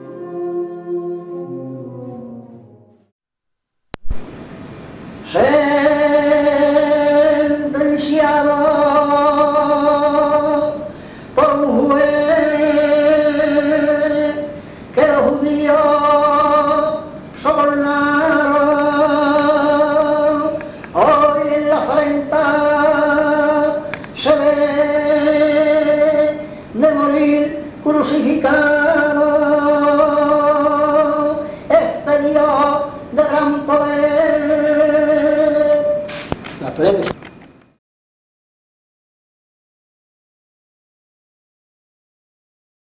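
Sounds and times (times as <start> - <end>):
man singing unaccompanied: 5.2 - 36.1.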